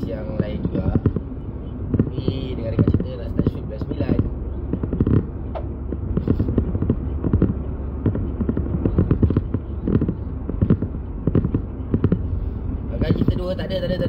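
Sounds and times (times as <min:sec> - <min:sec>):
muffled knocks and crackles: 0:00.0 - 0:12.4, 0:13.0 - 0:14.0
car interior rumble: 0:00.0 - 0:14.0.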